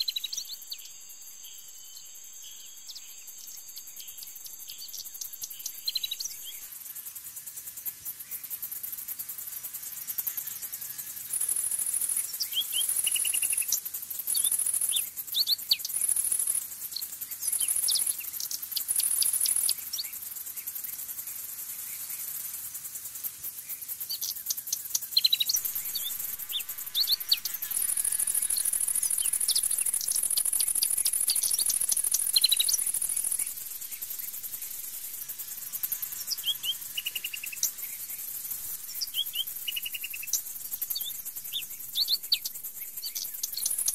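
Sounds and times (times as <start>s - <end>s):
high-pitched insect buzzing: 0.0s - 43.9s
high bird chirps: 2.9s - 6.7s, 11.2s - 20.2s, 24.1s - 43.9s.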